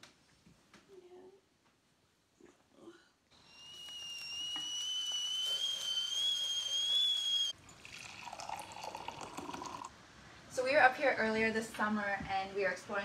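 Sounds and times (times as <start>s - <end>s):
kettle whistling: 3.4s - 9.9s
coffee pouring into mug: 7.6s - 9.9s.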